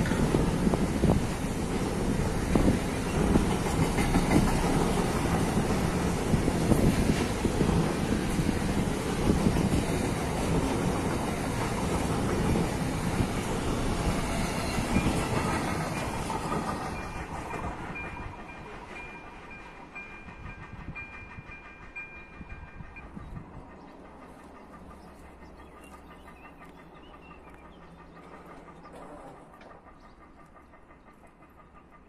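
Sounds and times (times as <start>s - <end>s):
freight train wagons clattering: 0.0s - 32.0s
level crossing warning bell: 16.9s - 23.4s.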